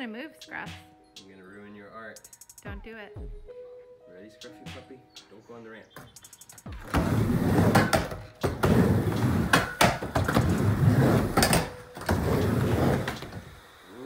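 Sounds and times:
skateboard clacks: 0:06.8 - 0:13.4
skateboard wheels rolling on ramp: 0:06.8 - 0:13.7.

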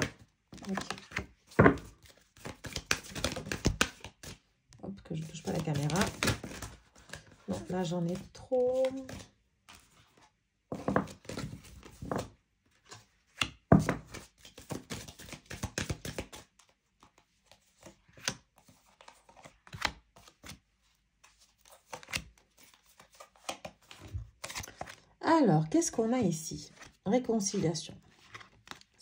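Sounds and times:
cards tapping and sliding: 0:00.0 - 0:04.4, 0:05.3 - 0:09.9, 0:10.7 - 0:12.3, 0:12.9 - 0:17.2, 0:17.8 - 0:20.6, 0:21.6 - 0:25.0, 0:28.2 - 0:28.9.

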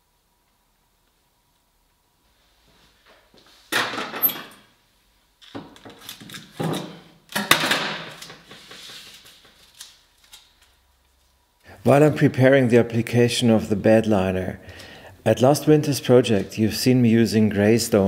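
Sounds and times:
objects clattering and rustling: 0:05.4 - 0:10.7.

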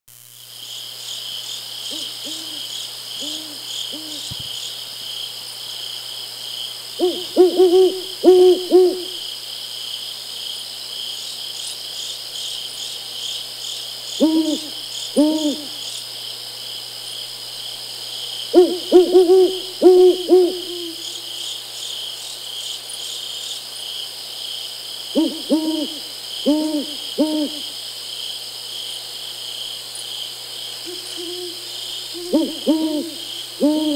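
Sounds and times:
insects chirping: 0:00.1 - 0:33.9
owl hooting: 0:01.9 - 0:04.4, 0:07.0 - 0:09.2, 0:14.2 - 0:15.8, 0:18.5 - 0:21.2, 0:25.1 - 0:27.7, 0:30.8 - 0:33.9.

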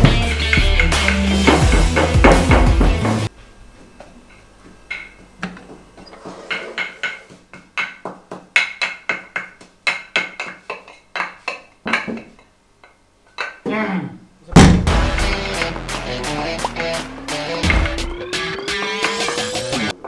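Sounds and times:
pestle pounding in mortar: 0:00.0 - 0:03.2.

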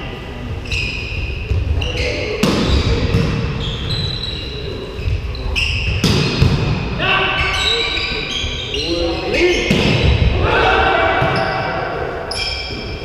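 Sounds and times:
sneakers squeaking on floor: 0:00.6 - 0:06.6, 0:07.3 - 0:10.3, 0:11.2 - 0:11.7, 0:12.3 - 0:13.0.

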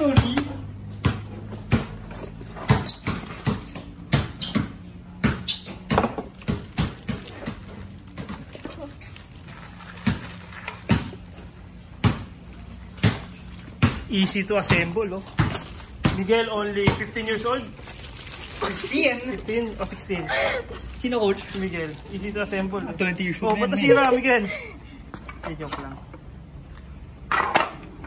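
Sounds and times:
plastic board and box clatter: 0:05.9 - 0:11.6, 0:12.4 - 0:20.0.

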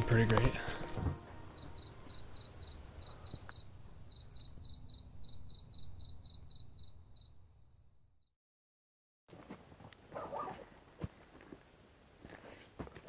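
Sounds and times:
cricket chirping: 0:01.3 - 0:07.9.

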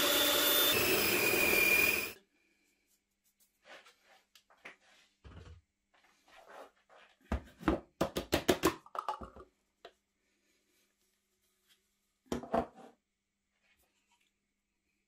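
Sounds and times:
flour rustling on chopping board: 0:02.7 - 0:05.2.

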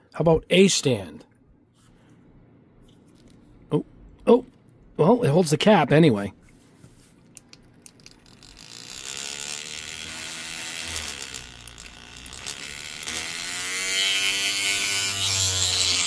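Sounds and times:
paint shaker motor vibrating: 0:08.0 - 0:16.0.

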